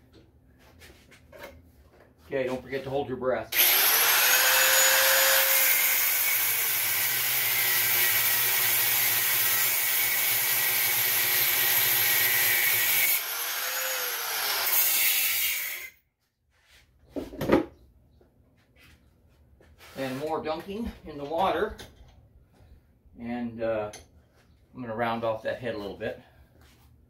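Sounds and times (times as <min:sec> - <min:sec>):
rotary tool grinding metal: 0:03.6 - 0:16.0.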